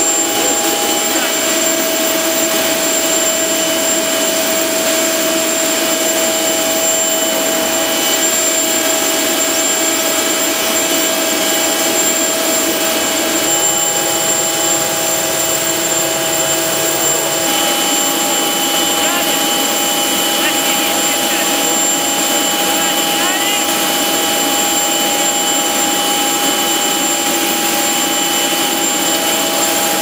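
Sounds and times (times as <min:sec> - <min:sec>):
aircraft turbine running: 0:00.0 - 0:30.0
high whining tones: 0:00.0 - 0:30.0.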